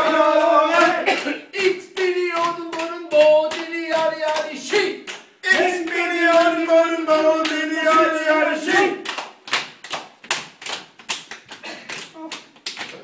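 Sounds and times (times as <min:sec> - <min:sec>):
men's choir singing: 0:00.0 - 0:09.0.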